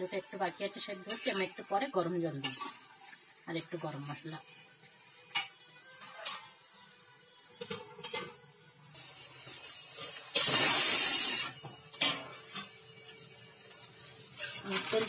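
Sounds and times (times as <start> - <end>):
sizzling hiss: 0.0 - 15.0
spatula scraping a pan: 0.9 - 1.7, 2.4 - 2.9, 5.3 - 6.9, 9.4 - 12.8, 14.4 - 15.0.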